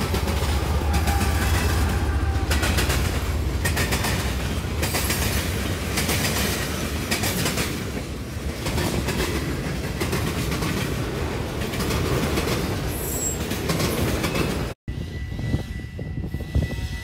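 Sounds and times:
train wheels clicking over rail joints: 0.0 - 14.8
high wheel squeal: 12.9 - 13.6.

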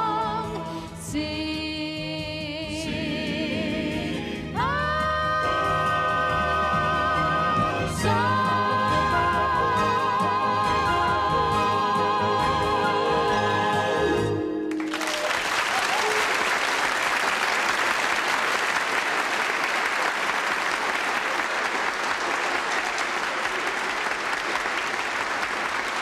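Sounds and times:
group singing held chord: 2.8 - 14.7
audience applause: 14.7 - 26.0.

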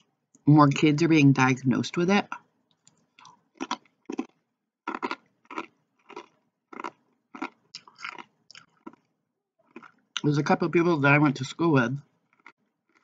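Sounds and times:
person chewing crunchy chips: 2.3 - 10.2, 12.2 - 13.0.

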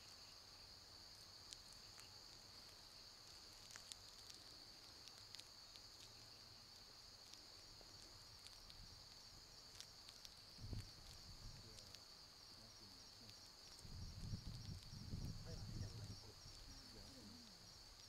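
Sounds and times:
insects chirping: 0.0 - 18.0
soft ticks: 1.4 - 12.0, 13.2 - 14.9.

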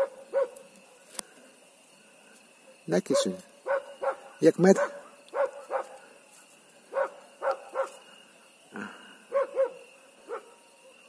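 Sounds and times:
dog barking: 0.0 - 0.6, 3.1 - 6.0, 6.9 - 8.0, 9.3 - 11.0.

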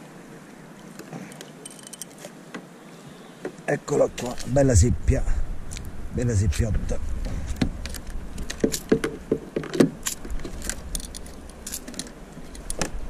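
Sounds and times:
fishing gear clicking and rattling: 0.8 - 2.4, 4.2 - 4.6, 7.6 - 13.0.

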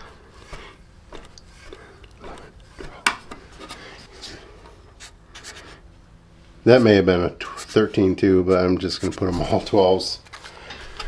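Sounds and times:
marker scratching on wood: 5.0 - 5.8, 6.8 - 9.6.

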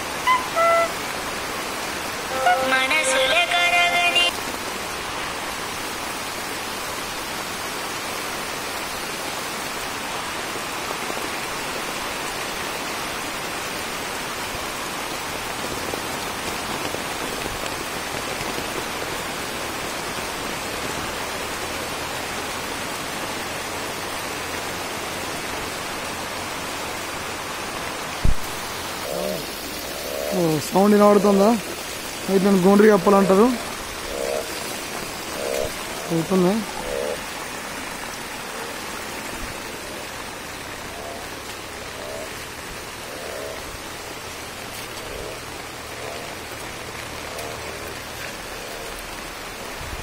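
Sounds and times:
heavy rain on foliage: 0.0 - 50.0.

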